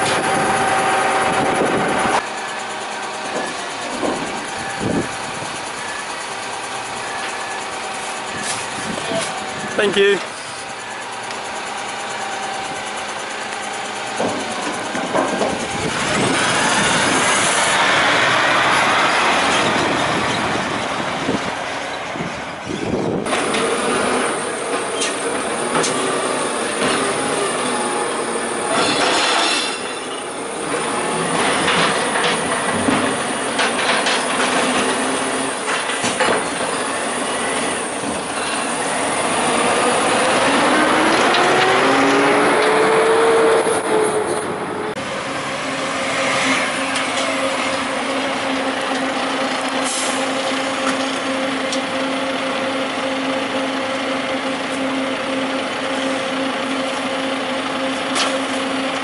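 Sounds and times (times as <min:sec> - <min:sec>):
garbage truck engine: 0:00.0 - 0:59.0
hydraulic compactor whine: 0:00.0 - 0:59.0
metal knocks and clanks: 0:03.2 - 0:04.5, 0:14.1 - 0:16.4.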